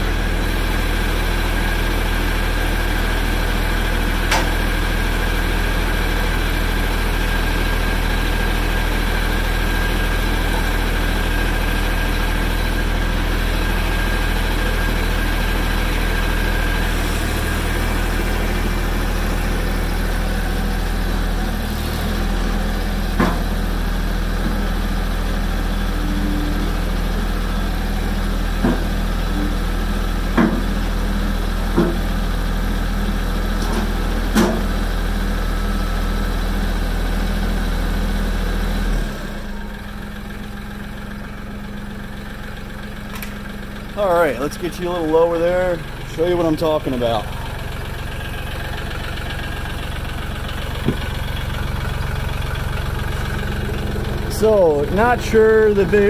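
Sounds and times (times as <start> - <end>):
diesel tractor engine idling: 0.0 - 56.0.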